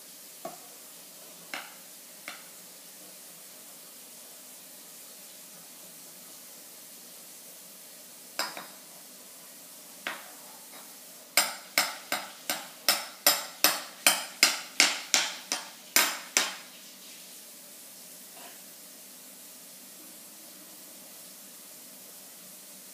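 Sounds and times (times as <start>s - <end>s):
metal spoon tapping plastic tub: 11.4s - 16.6s.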